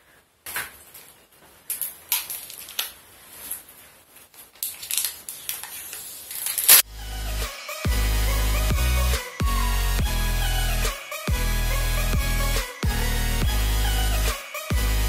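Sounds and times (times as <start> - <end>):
crinkly rustling: 0.8 - 6.8
music with heavy bass: 6.8 - 15.0.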